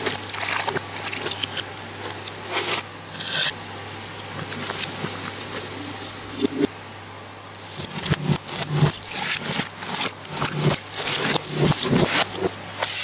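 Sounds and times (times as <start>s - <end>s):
low steady hum: 0.0s - 13.0s
reversed batter scrapes and swishes: 7.8s - 13.0s.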